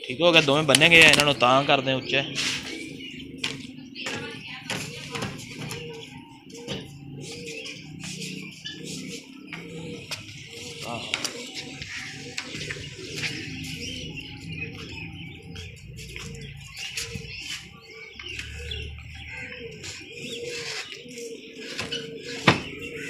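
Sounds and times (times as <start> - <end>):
pigeons cooing: 0.0 - 23.0
wings flapping and rustling: 0.6 - 1.4.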